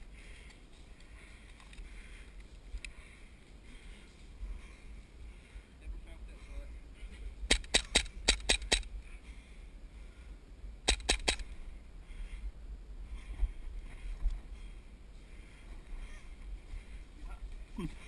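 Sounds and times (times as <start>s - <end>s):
airsoft pistol firing: 7.5s - 8.9s, 10.9s - 11.5s.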